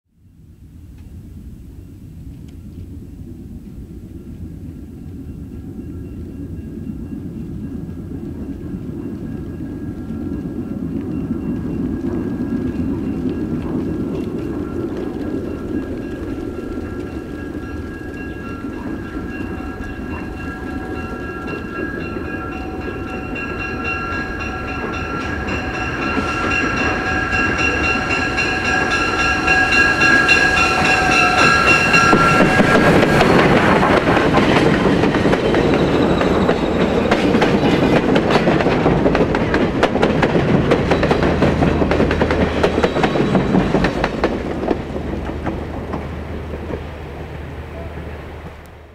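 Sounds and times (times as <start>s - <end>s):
train rumble: 0.2s - 48.9s
train rushing past: 2.0s - 48.9s
steam locomotive chime whistle: 5.0s - 33.6s, 35.3s - 37.9s
wheels clacking over rail joints: 7.9s - 48.7s.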